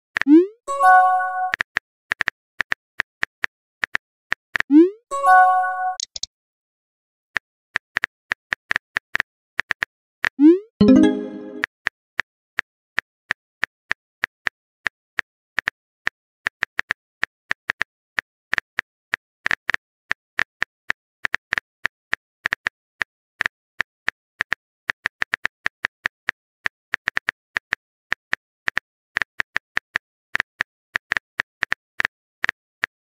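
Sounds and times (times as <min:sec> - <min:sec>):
phone keyboard typing clicks: 0:05.9 - 0:06.3.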